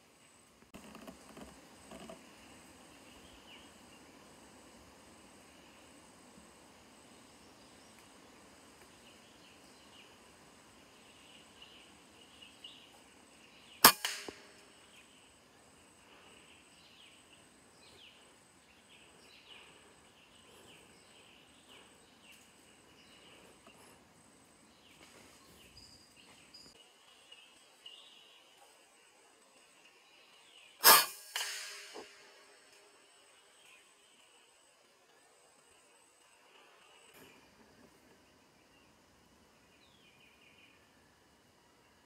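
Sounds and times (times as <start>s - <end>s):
faint high chirping: 7.2s - 37.6s
air rifle shot crack: 13.8s - 14.7s, 30.8s - 32.4s.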